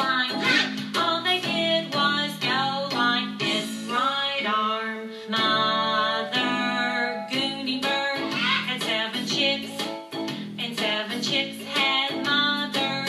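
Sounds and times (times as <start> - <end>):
person singing: 0.0 - 13.0
guitar accompaniment: 7.4 - 12.9.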